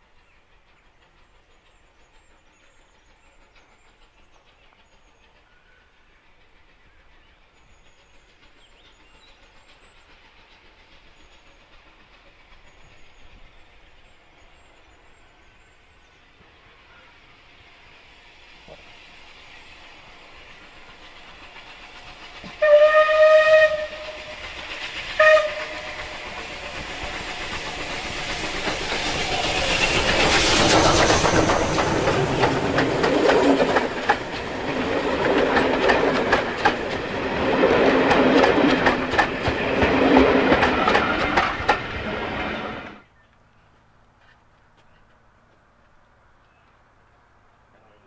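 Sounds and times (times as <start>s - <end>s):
steam locomotive working hard: 0.0s - 43.1s
train wheels clicking over rails: 0.0s - 43.1s
steam whistle blast: 22.5s - 24.5s, 25.1s - 26.2s.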